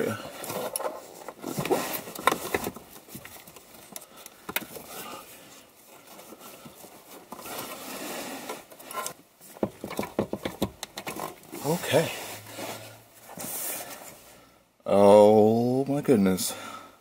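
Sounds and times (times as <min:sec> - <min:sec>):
clicks and knocks: 0:09.6 - 0:11.4.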